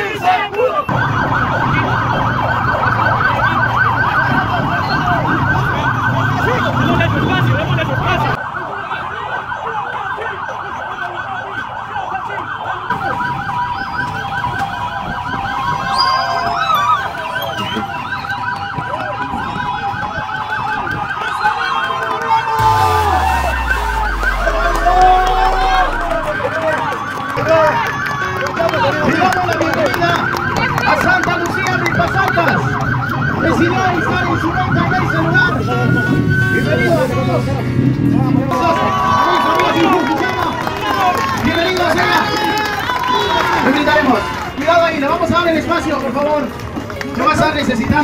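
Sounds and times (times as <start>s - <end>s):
siren yelping: 0.8s - 21.9s, 22.6s - 27.4s, 31.6s - 36.9s
low hum: 22.6s - 26.7s.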